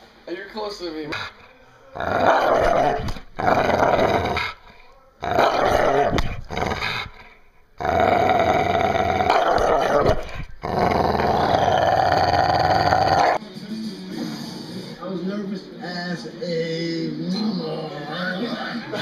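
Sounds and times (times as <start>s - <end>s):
dog growling: 1.1s - 13.4s.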